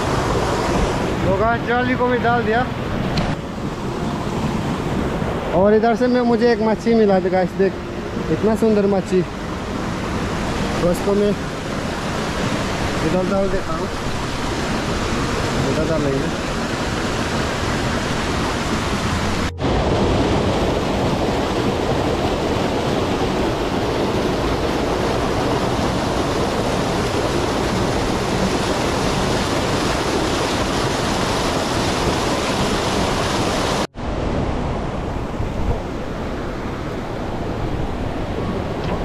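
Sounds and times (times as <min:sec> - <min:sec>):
stream and waterfall rushing: 0:00.0 - 0:39.0.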